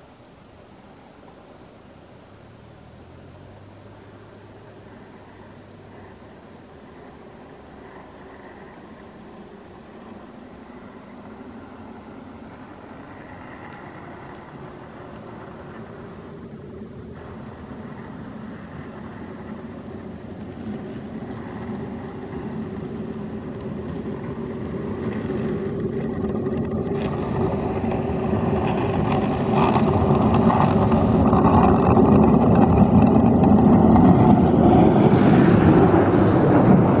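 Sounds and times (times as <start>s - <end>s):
diesel truck engine passing: 2.4s - 37.0s
rush of snow off plough: 17.2s - 37.0s.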